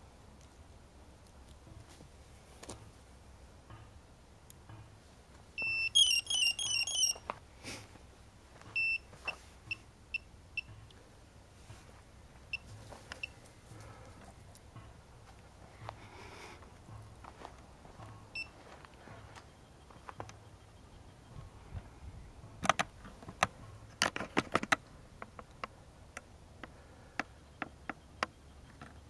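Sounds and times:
high electronic beeps: 0:05.6 - 0:07.2, 0:08.8 - 0:09.1.

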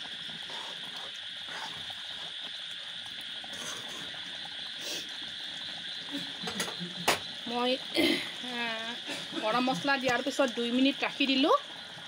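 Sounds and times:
curry bubbling: 0:00.0 - 0:12.0.

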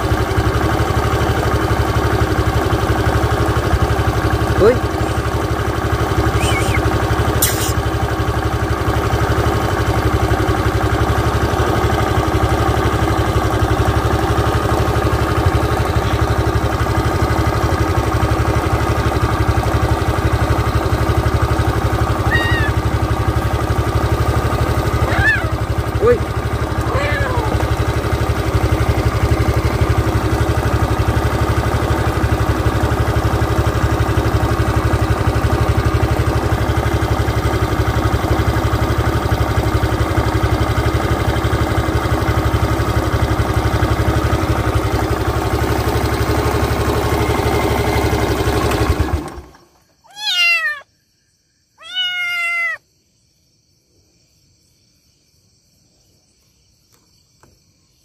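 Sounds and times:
engine drone: 0:00.0 - 0:50.3
kitten meowing: 0:06.4 - 0:07.8, 0:22.2 - 0:22.9, 0:25.0 - 0:25.6, 0:26.8 - 0:27.7, 0:50.0 - 0:50.9, 0:51.8 - 0:52.8.

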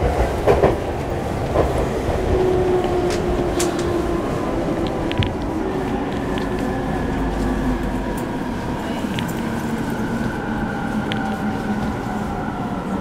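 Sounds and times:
train inverter whine: 0:00.0 - 0:13.0
wheels rumbling on rail: 0:00.0 - 0:13.0.

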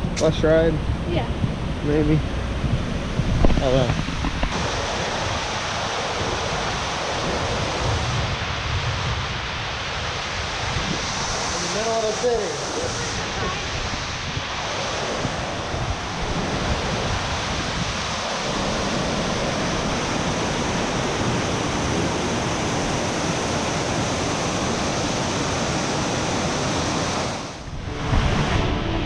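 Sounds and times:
steady rushing noise: 0:00.0 - 0:29.0.

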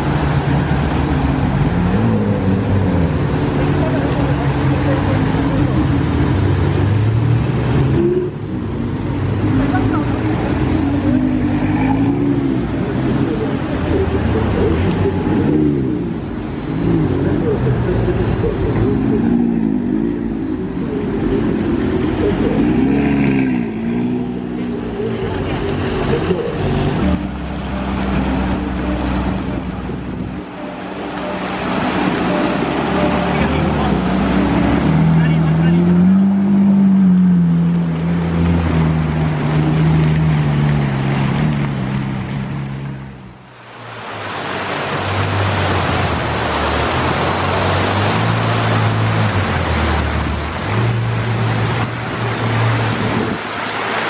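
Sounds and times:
car engine low drone: 0:00.0 - 0:54.0
steady rushing noise: 0:37.8 - 0:54.0.

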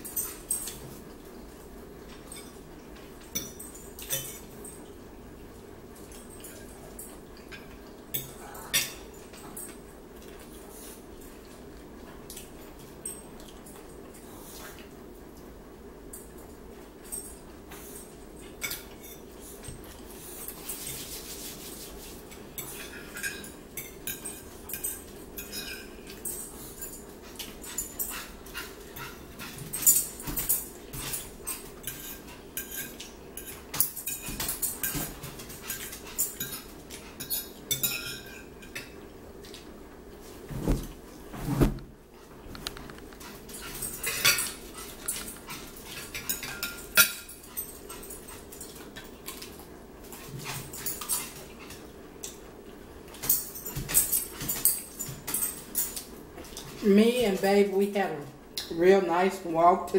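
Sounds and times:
forks clinking on plates: 0:00.0 - 0:01.2, 0:02.1 - 0:04.9, 0:06.0 - 0:10.4, 0:17.0 - 0:20.0, 0:22.3 - 0:39.6, 0:43.5 - 0:49.6, 0:53.1 - 0:56.8.

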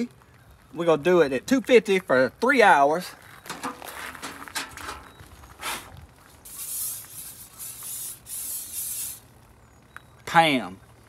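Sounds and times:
aerosol spray can hissing: 0:06.5 - 0:09.2.

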